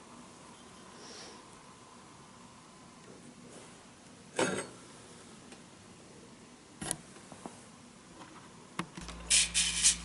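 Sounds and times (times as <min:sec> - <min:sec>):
metal rubbed on sandpaper: 0:09.0 - 0:10.0.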